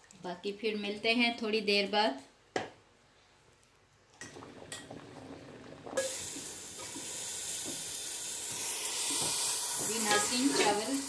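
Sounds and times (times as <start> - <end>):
ghee sizzling in pot: 6.0 - 11.0
metal pot clinking: 9.9 - 11.0.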